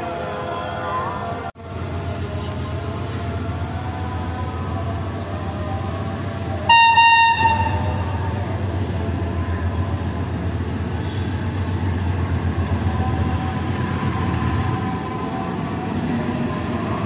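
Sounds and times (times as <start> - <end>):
locomotive engine rumble: 0.0 - 17.0
train horn blast: 6.6 - 8.3.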